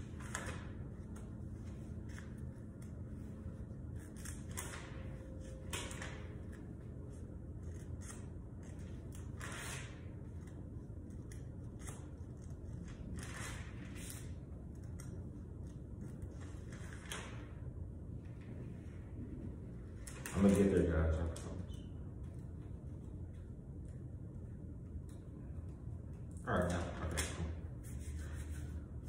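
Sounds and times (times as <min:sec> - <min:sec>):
pages turning: 0:00.0 - 0:06.6
low background hum: 0:00.0 - 0:29.0.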